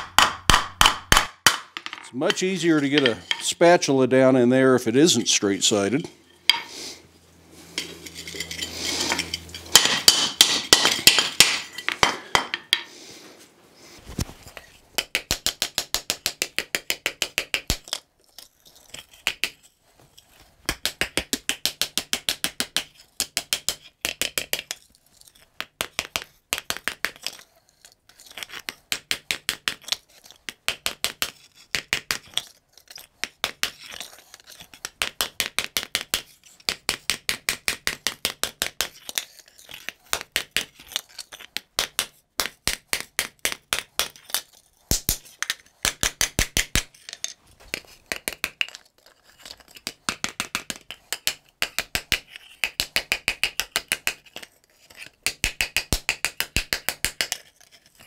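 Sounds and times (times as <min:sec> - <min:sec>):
hammer striking metal: 0:00.0 - 0:03.6, 0:06.0 - 0:06.8, 0:07.8 - 0:12.9.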